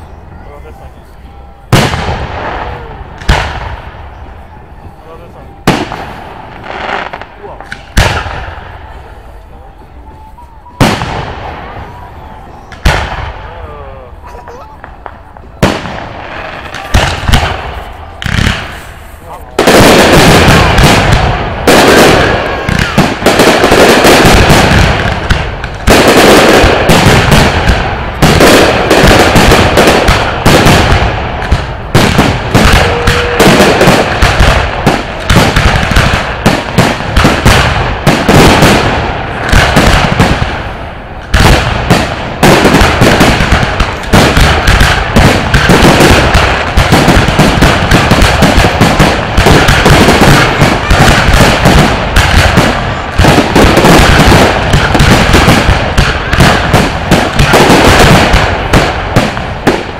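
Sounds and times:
firework shells bursting: 14.8 - 59.9.

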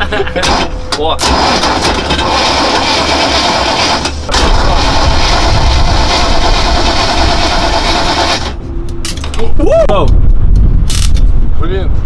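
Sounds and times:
starter motor cranking engine: 0.4 - 8.6.

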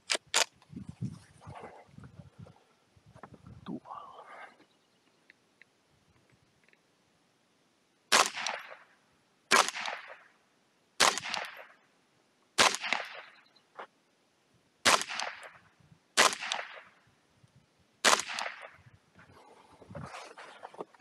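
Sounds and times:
rifle shots with echo: 8.1 - 8.9, 9.5 - 10.3, 11.0 - 11.8, 12.6 - 13.4, 14.8 - 15.6, 16.2 - 17.0, 18.0 - 18.8.

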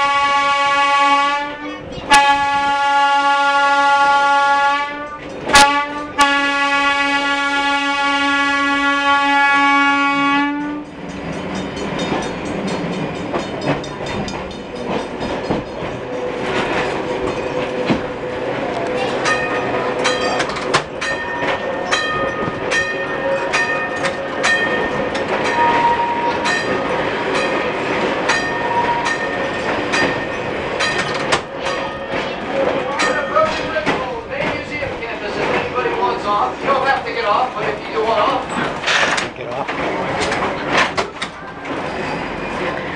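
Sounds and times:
long steady horn-like tone: 0.0 - 10.9
streetcar rumbling on track: 0.0 - 42.9
wheels clicking over rail joints: 10.6 - 42.9.

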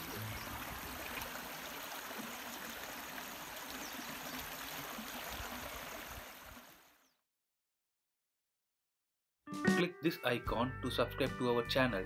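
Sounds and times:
stream running over rocks: 0.0 - 7.0.

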